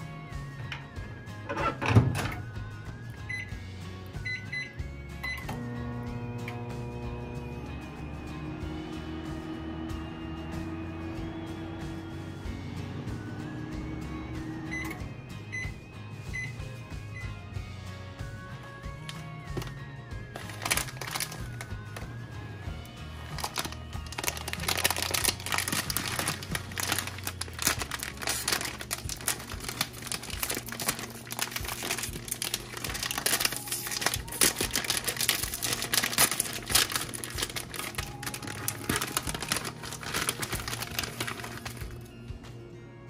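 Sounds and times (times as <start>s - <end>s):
background music: 0.0s - 43.0s
plastic packet crinkling: 20.4s - 22.1s, 23.2s - 42.1s.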